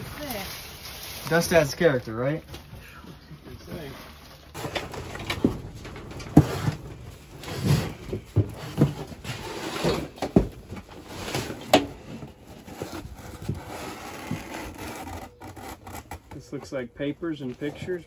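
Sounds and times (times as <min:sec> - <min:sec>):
scraping and rustling: 0:03.6 - 0:16.7
boxes and crates thumping: 0:04.6 - 0:15.2.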